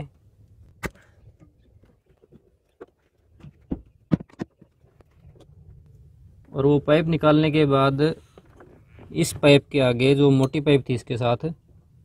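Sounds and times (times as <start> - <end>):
clicks and knocks of engine parts: 0.1 - 6.5.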